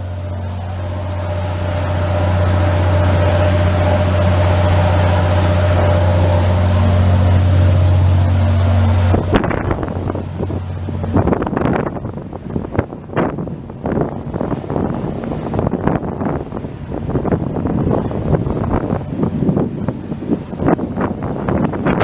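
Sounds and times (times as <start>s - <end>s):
ferry engine droning: 0.0s - 22.0s
wind buffeting microphone: 0.0s - 22.0s.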